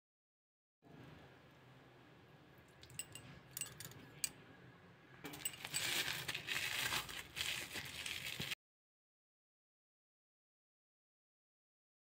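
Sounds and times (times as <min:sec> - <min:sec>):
crackling as something is crumbled by hand: 0:05.6 - 0:08.6.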